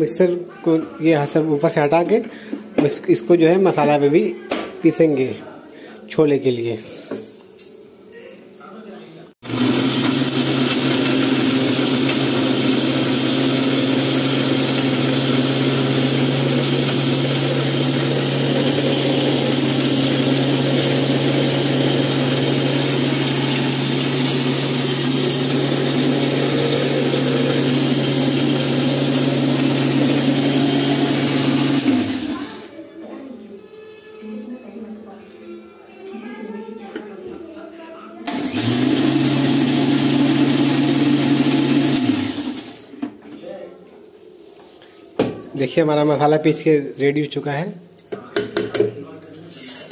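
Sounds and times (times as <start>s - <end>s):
mixer grinder motor whining: 9.4s - 32.7s, 38.3s - 43.0s.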